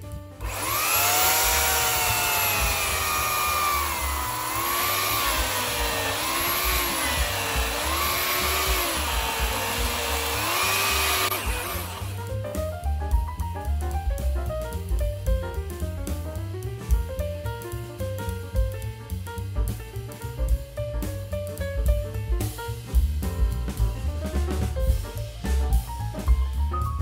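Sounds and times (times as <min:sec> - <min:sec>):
electric chainsaw motor whine: 0:00.4 - 0:12.3.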